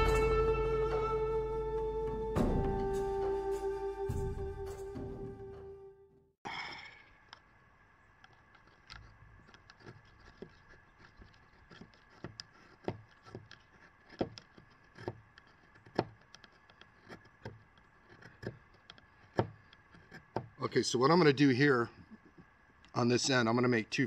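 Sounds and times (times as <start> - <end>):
knife cutting wood shavings: 8.5 - 20.4.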